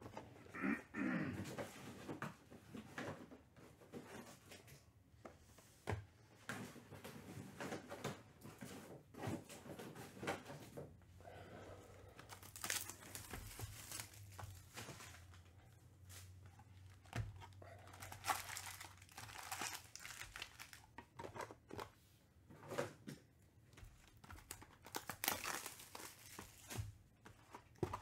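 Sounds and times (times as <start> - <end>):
card pack wrappers crinkling: 12.1 - 21.8, 24.0 - 28.0
cards handled rustles and clicks: 12.1 - 22.0, 23.7 - 28.0.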